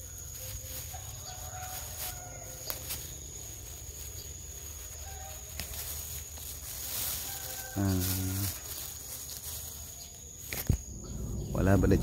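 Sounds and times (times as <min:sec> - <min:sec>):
high-pitched insect drone: 0:00.0 - 0:12.0
low rumble: 0:10.7 - 0:12.0.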